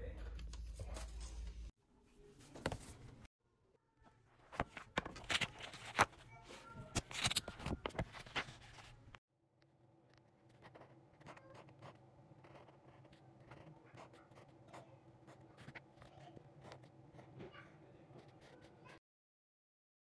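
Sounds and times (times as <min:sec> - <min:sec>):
notebook pages handled: 0:04.4 - 0:06.2, 0:06.8 - 0:09.0
paper rustling: 0:04.4 - 0:09.2
marker scratching on paper: 0:10.2 - 0:17.5, 0:18.2 - 0:19.0.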